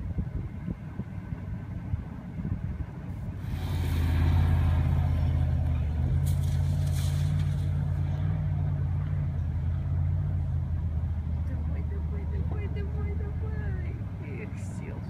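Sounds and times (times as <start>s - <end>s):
engine revving hard under load: 3.4s - 8.7s.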